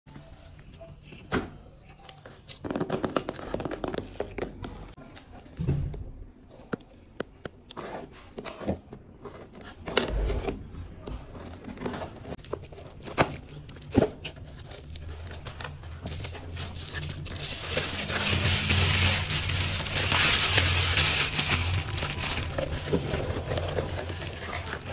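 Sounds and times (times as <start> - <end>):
bubble wrap crinkling: 12.3 - 24.9.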